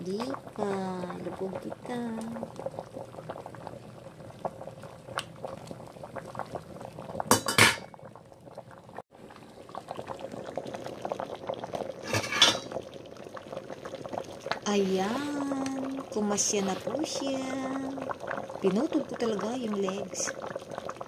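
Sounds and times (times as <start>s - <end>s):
pot boiling with fine bubbling: 0.0s - 21.0s
utensil clattering against pot: 12.1s - 12.7s.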